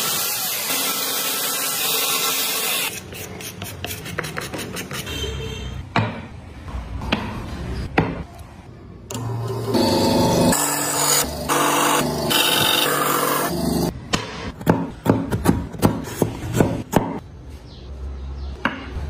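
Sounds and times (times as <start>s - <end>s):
tool scraping: 2.6s - 5.3s
power tool motor running: 9.1s - 13.9s.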